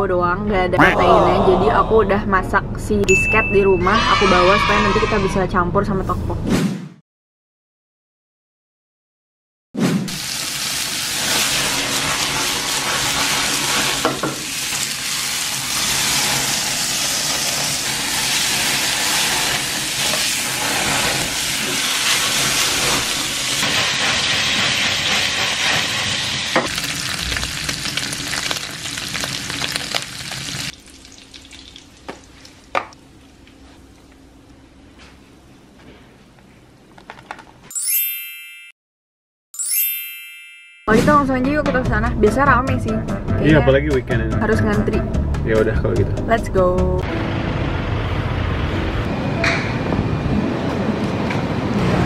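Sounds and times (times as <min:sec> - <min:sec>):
food sizzling in a pan: 0:10.1 - 0:32.8.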